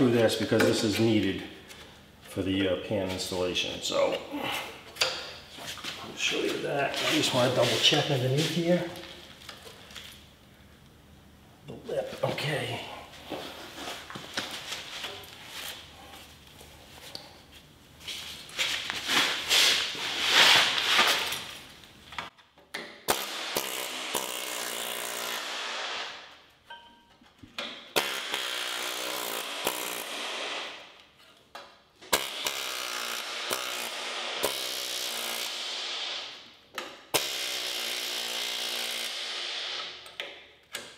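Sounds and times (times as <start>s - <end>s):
pneumatic tool running: 23.1s - 26.1s, 28.0s - 30.7s, 32.1s - 36.3s, 37.1s - 40.0s.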